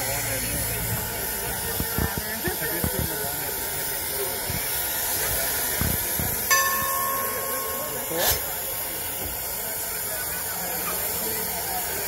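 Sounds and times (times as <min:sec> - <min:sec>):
crowd voices: 0:00.0 - 0:12.0
steam locomotive hissing: 0:00.0 - 0:12.0
steady tone: 0:06.5 - 0:08.9.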